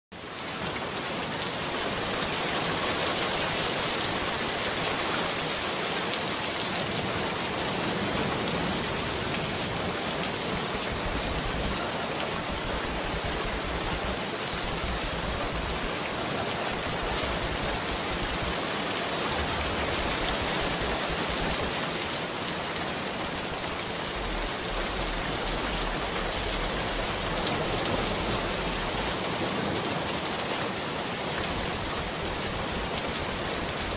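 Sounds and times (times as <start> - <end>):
steady rain hiss: 0.2 - 33.9
faint low rumble: 12.4 - 15.9, 23.7 - 29.1.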